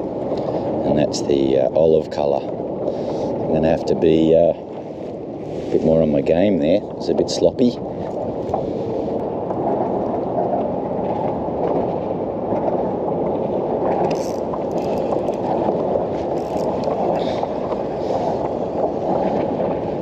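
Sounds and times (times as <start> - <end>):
choppy water around kayak: 0.0 - 20.0
spinning reel ticking: 16.4 - 16.9.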